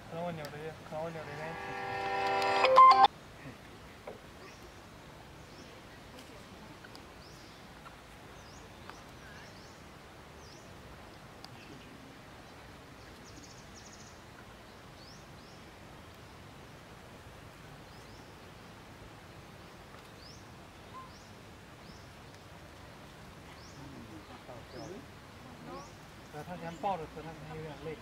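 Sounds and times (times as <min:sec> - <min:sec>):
person speaking: 0:00.7 - 0:03.0
faint trill: 0:01.1 - 0:03.1.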